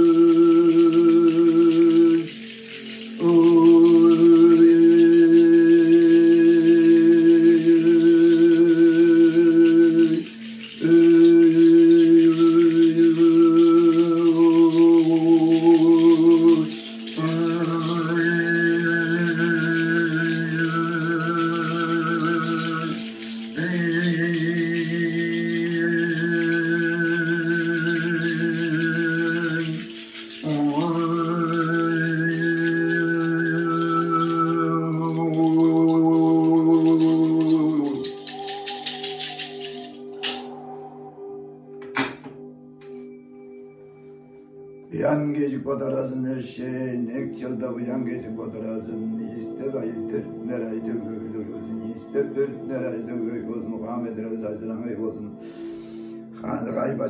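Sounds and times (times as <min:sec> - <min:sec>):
low drone: 0:00.0 - 0:41.8
person chanting long notes: 0:00.0 - 0:41.8.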